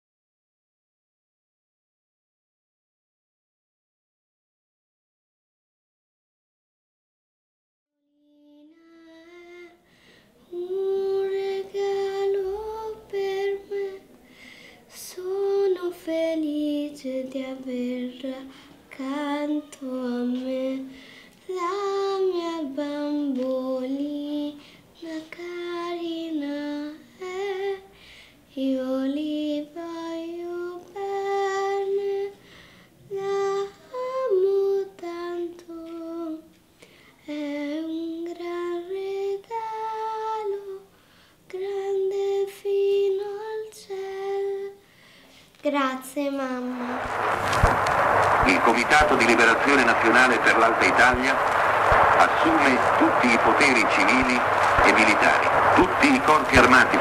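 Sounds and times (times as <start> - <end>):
girl singing unaccompanied: 8.1 - 32.4, 33.0 - 36.6, 37.2 - 44.9, 45.6 - 47.0.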